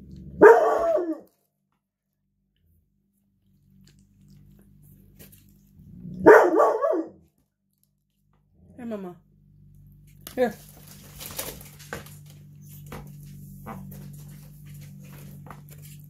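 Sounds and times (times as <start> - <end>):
dog barking: 0.4 - 1.3, 6.2 - 7.3.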